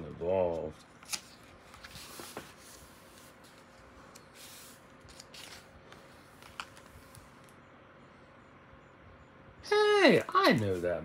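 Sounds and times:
paper pages rustling: 0.4s - 7.4s.

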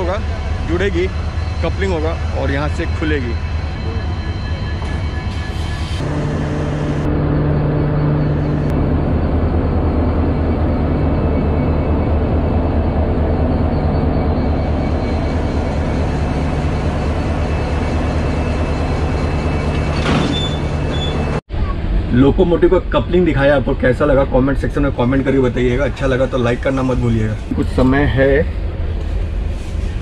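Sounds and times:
diesel locomotive engine humming: 0.0s - 30.0s.

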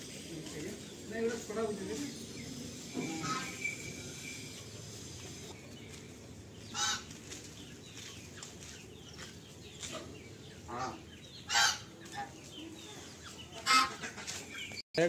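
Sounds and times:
faint high twittering: 0.0s - 6.0s
chickens clucking: 0.0s - 14.8s
loud harsh bird call: 2.1s - 4.7s, 6.7s - 7.1s, 10.6s - 12.3s
geese honking: 2.8s - 4.3s, 6.6s - 7.4s, 9.8s - 12.5s, 13.4s - 14.4s.

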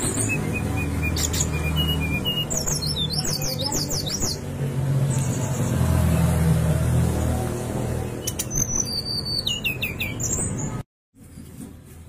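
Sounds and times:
bird singing whistled notes: 0.0s - 4.4s, 8.2s - 10.8s.

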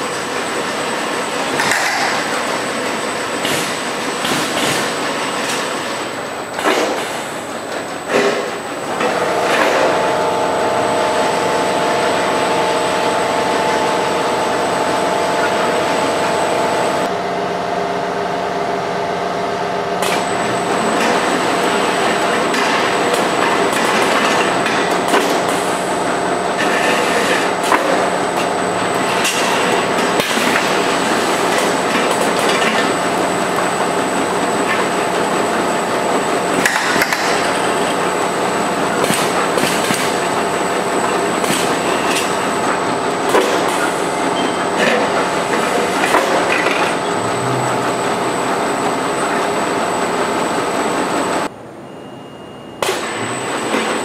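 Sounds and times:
machine hum: 0.0s - 51.9s.

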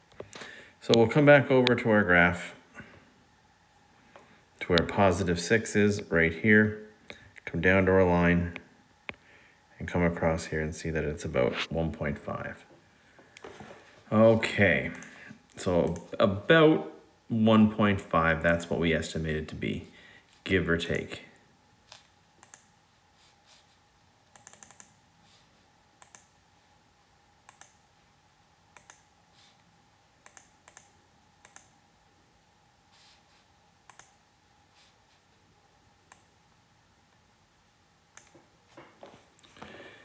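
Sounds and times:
faint steady hum: 0.0s - 40.0s
faint irregular clicks: 21.9s - 22.7s, 24.3s - 25.0s, 26.0s - 26.4s, 27.5s - 27.8s, 28.8s - 29.1s, 30.2s - 31.8s, 33.8s - 34.2s, 38.1s - 38.5s.

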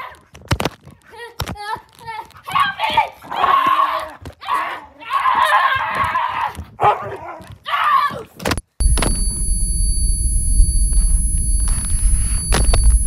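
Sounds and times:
person yelling and shrieking: 2.5s - 6.6s
steady high ringing tone: 8.8s - 13.0s.

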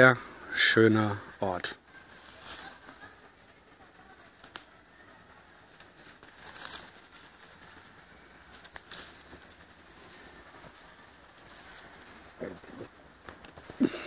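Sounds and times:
leaves crackling: 0.0s - 14.0s
footsteps in dry leaves: 2.0s - 3.6s, 5.6s - 12.8s.

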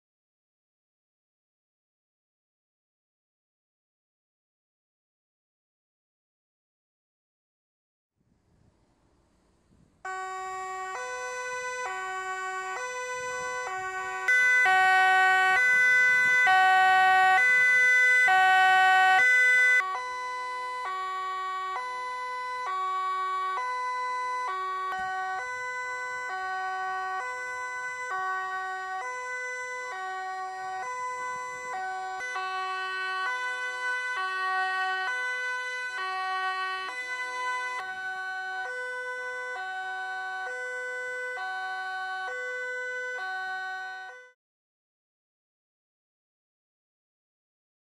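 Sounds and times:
two-tone police sirens: 10.0s - 44.4s.

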